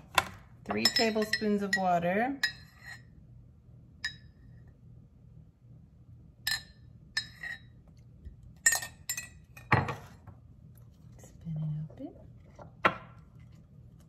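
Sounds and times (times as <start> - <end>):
spoon clinking against dish: 0.7 - 3.0, 4.0 - 4.4, 6.5 - 7.7.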